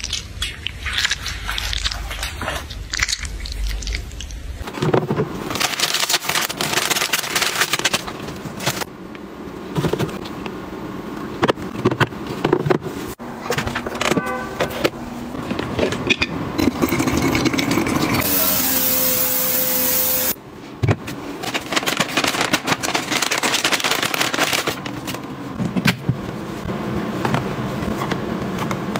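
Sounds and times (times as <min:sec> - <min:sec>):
household items rustling and clicking: 0:21.4 - 0:26.2.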